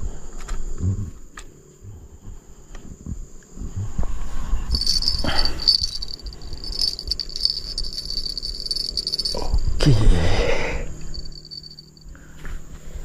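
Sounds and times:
high-pitched insect chorus: 4.7 - 9.7, 10.4 - 12.2.

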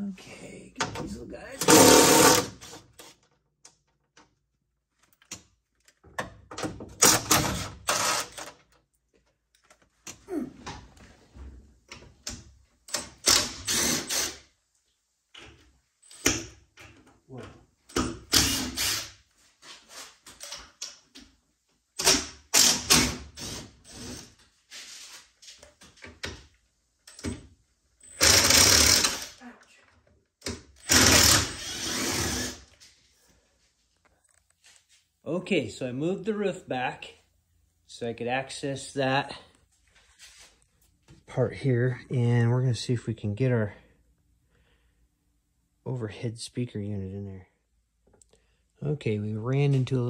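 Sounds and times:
cordless drill running in bursts: 1.7 - 2.6, 7.9 - 8.3, 13.3 - 14.4, 18.3 - 19.1, 28.2 - 29.4, 30.8 - 32.7.

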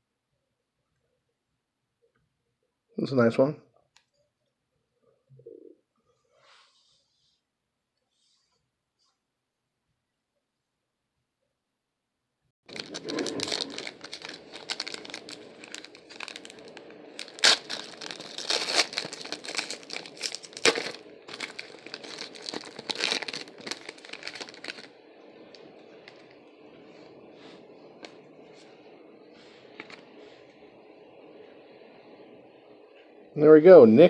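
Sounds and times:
card wrapper tearing and crinkling: 12.7 - 24.9
cards rustling: 12.7 - 24.9.

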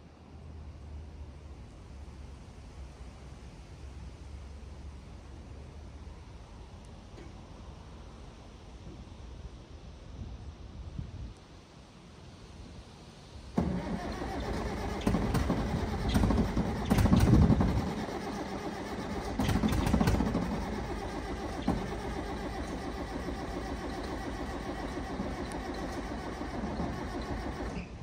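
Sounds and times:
loader engine starting: 13.6 - 28.0.

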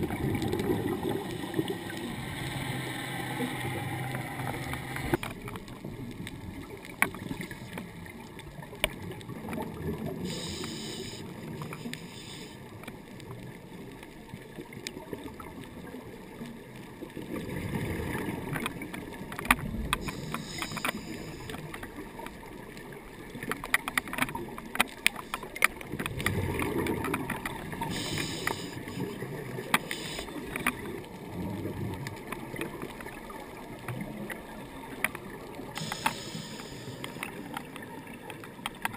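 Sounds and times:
exhaled bubbles rumbling: 0.0 - 10.5, 13.0 - 20.6, 25.8 - 38.9
sharp underwater clicks and crackles: 0.0 - 38.9
regulator hissing inhalations: 10.3 - 12.6, 20.0 - 21.6, 27.9 - 29.1, 29.8 - 30.6, 35.8 - 37.4.

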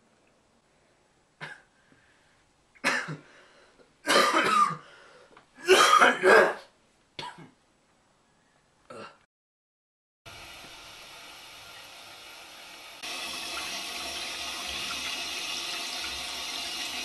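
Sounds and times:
man coughing and retching: 2.8 - 3.2, 4.0 - 4.8, 5.6 - 7.6.

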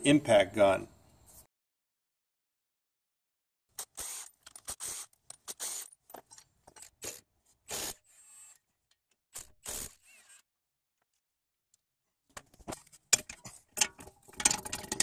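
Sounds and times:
impact wrench bursts: 3.8 - 6.0, 7.0 - 8.6, 9.4 - 10.4.

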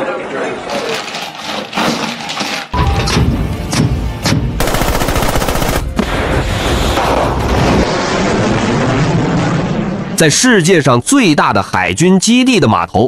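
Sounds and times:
rapid gunfire: 4.6 - 6.0
missile launching: 5.9 - 10.2.

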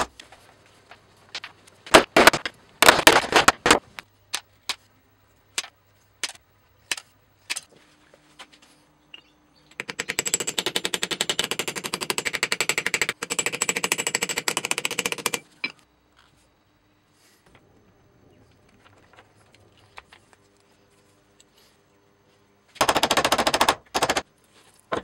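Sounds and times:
small hammer tapping rivets: 9.2 - 15.8.

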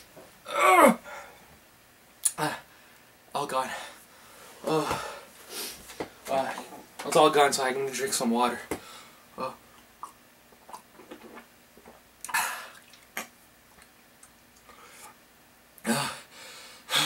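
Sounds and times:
swallowing clicks: 9.8 - 14.7
man sipping water: 9.8 - 15.2.

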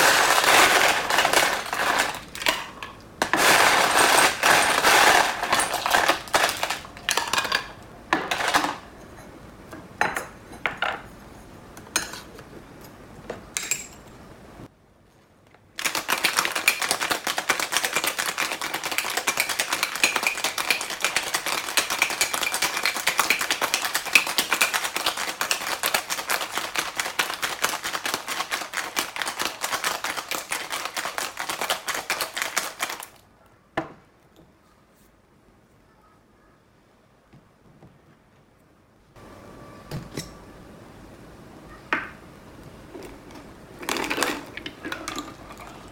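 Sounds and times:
cocktail shaker rattling with ice: 0.0 - 2.6, 3.3 - 7.3, 15.8 - 33.2, 43.8 - 45.9.

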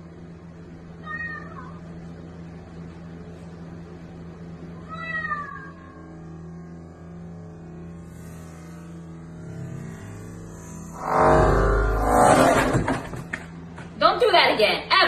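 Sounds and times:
steady low hum: 0.0 - 15.0
cat meowing: 1.0 - 1.8, 4.8 - 6.0.

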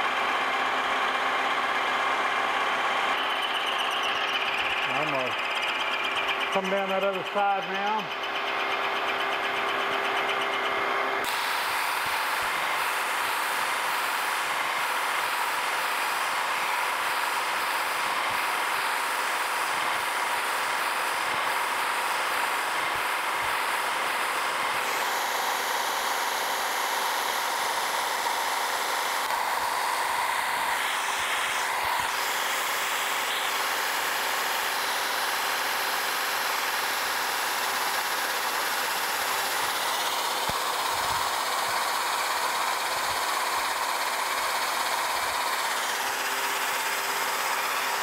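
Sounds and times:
end mill cutting steel: 0.1 - 48.0
milling machine tone: 2.6 - 13.1.

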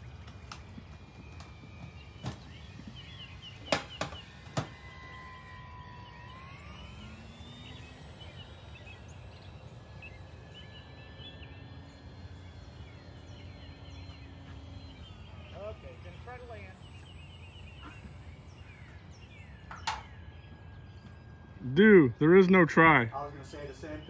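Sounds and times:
model plane motor whining: 0.0 - 24.0
sharp clicks: 0.2 - 7.9.

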